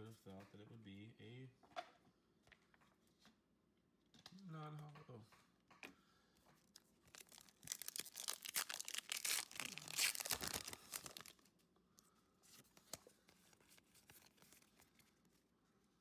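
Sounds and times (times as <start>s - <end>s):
foil wrapper tearing and crinkling: 7.1s - 11.5s.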